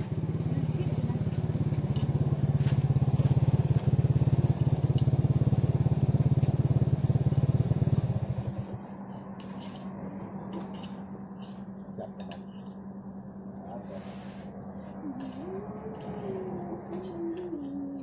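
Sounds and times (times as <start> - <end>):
motorcycle engine idling: 0.0 - 9.4.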